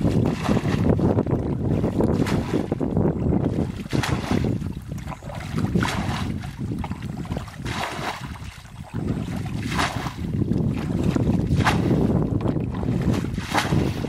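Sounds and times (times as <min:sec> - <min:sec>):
water splashing from bucket: 0:00.0 - 0:14.0
wind rumble on microphone: 0:00.0 - 0:14.0.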